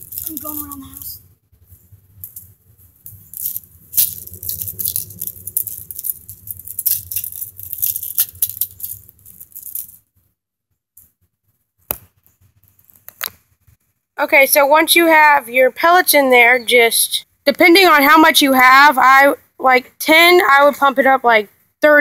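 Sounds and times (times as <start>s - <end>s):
metal pellets rattling in a tin: 0.0s - 0.8s, 3.1s - 10.0s.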